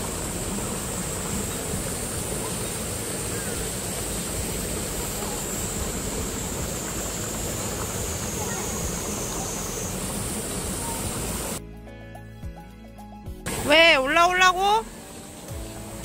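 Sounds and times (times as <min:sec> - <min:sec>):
high-pitched hiss: 0:00.0 - 0:11.6, 0:13.5 - 0:16.0
rocky stream flowing: 0:00.0 - 0:11.6.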